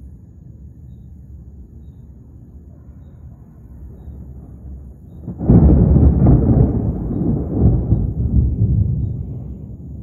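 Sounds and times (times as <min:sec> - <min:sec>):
thunder clap and rumble: 0:03.8 - 0:10.0.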